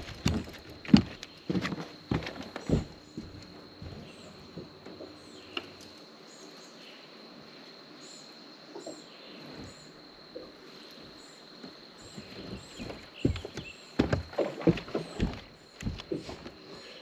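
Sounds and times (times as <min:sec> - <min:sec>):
knocks and thumps on boat: 0:00.0 - 0:05.2, 0:12.1 - 0:16.6.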